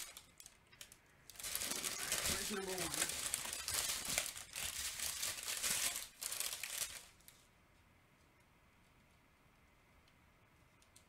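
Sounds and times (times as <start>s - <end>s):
plastic bags crinkling: 0.0s - 7.5s.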